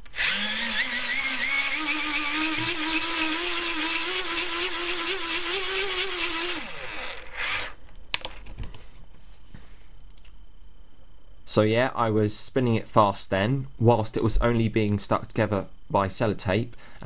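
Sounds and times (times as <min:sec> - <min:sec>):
hand-crank dynamo whining: 0:00.0 - 0:07.8.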